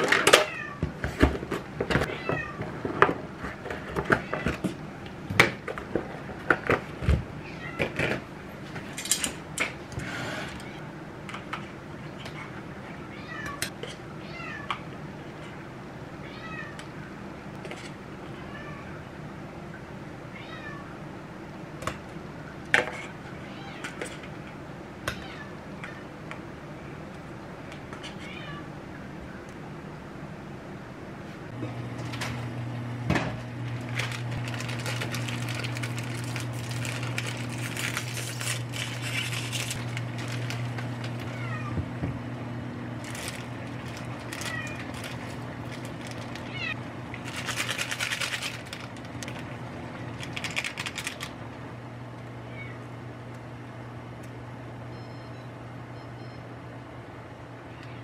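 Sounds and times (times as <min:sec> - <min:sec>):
steady low hum: 0:00.9 - 0:58.0
crackling plastic packets: 0:33.7 - 0:41.4, 0:43.0 - 0:51.4
cat meowing: 0:41.2 - 0:41.8, 0:44.3 - 0:45.0, 0:46.4 - 0:46.8.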